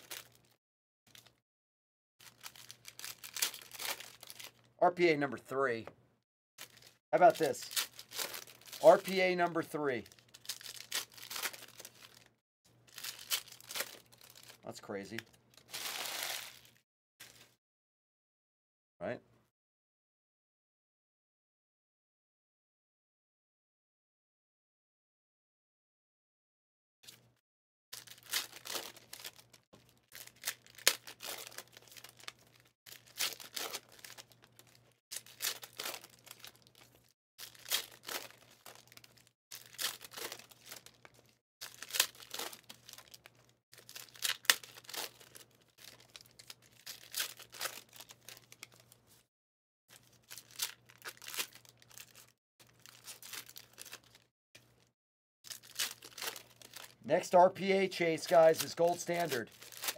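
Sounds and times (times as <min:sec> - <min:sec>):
foil wrappers ripping and crinkling: 0:00.0 - 0:01.4, 0:02.2 - 0:04.6, 0:06.6 - 0:12.3, 0:12.9 - 0:14.6, 0:15.5 - 0:17.6, 0:28.0 - 0:48.9, 0:50.0 - 0:54.3, 0:55.5 - 0:57.4, 0:58.2 - 0:59.9.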